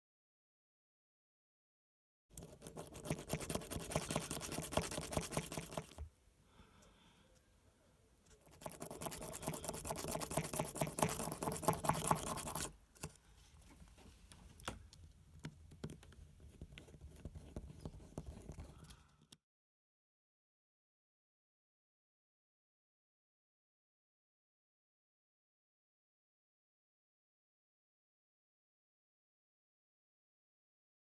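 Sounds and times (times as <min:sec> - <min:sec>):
light scratches and clicks: 0:08.2 - 0:19.4.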